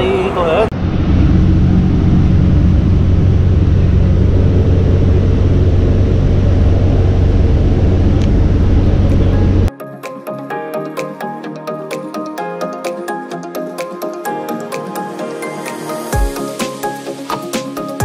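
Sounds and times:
bus engine drone: 0:00.0 - 0:09.7.

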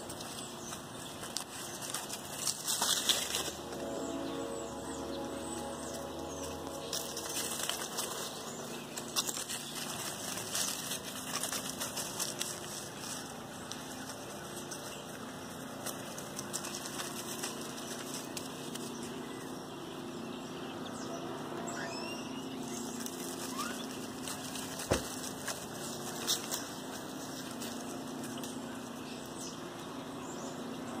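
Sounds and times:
rustling of dry leaves: 0:00.0 - 0:31.0
high rising chirps: 0:03.5 - 0:09.0.

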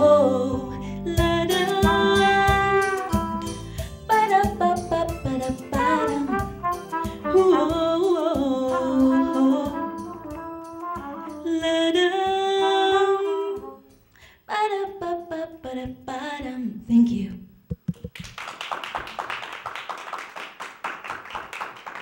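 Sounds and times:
woman singing soulful melody: 0:00.0 - 0:06.5, 0:07.2 - 0:13.9, 0:14.5 - 0:16.9
trumpet playing long notes: 0:01.9 - 0:03.8, 0:05.7 - 0:11.6.

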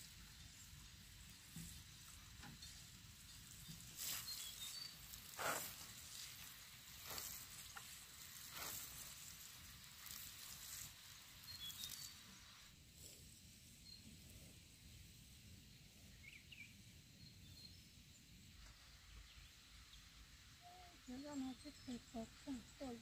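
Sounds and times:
water sprinkling onto soil: 0:00.0 - 0:12.7.

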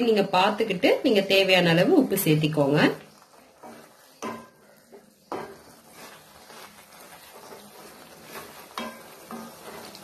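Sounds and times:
light sizzle of frying: 0:00.0 - 0:10.0
wooden spatula scraping a pan: 0:01.0 - 0:10.0
spatula knocking against pan: 0:03.7 - 0:06.1, 0:08.7 - 0:09.8.

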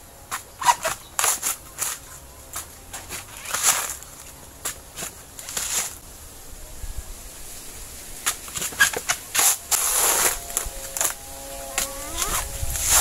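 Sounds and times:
husks rustling and scraping: 0:00.0 - 0:13.0.

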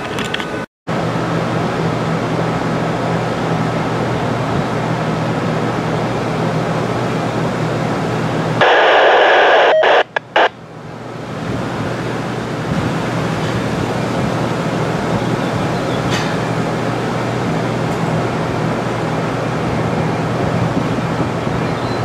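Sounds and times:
radio scanner static: 0:08.6 - 0:10.6.

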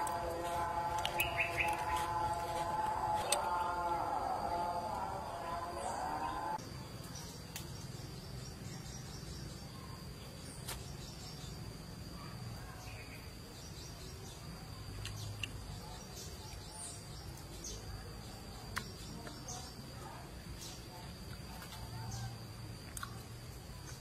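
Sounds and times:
eating clicks and smacks: 0:22.8 - 0:24.0.

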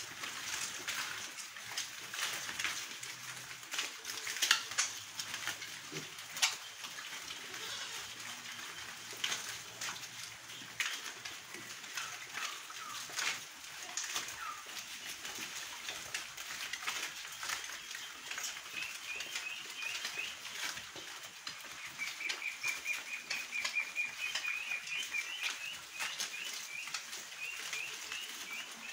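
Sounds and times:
piglets chewing and rustling: 0:00.0 - 0:28.9
bird chirping: 0:17.7 - 0:20.7, 0:21.6 - 0:28.9.

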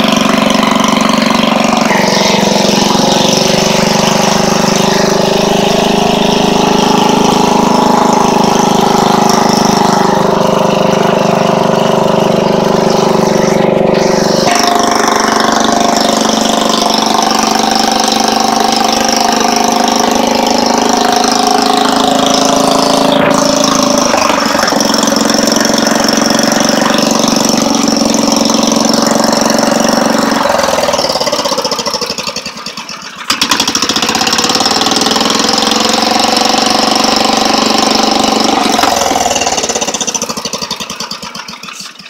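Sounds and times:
air-cooled engine running: 0:00.0 - 0:42.0.

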